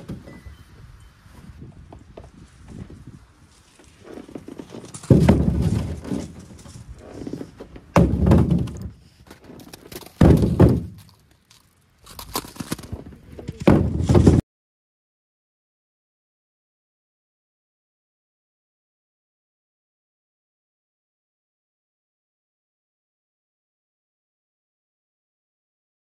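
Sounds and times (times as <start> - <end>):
shovel crunching into snow: 11.0 - 13.0.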